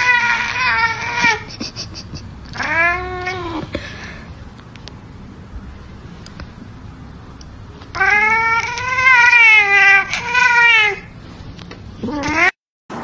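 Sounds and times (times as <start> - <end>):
cat yowling: 0.0 - 1.5, 2.5 - 3.6, 7.9 - 11.1.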